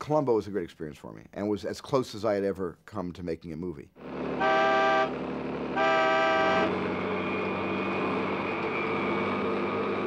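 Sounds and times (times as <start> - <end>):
vehicle engine and road noise: 4.0 - 10.0
vehicle horn blasts: 4.4 - 5.2, 5.8 - 6.8.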